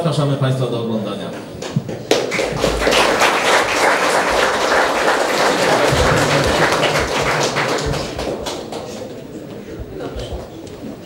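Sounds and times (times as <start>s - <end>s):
audience applauding: 1.6s - 10.5s.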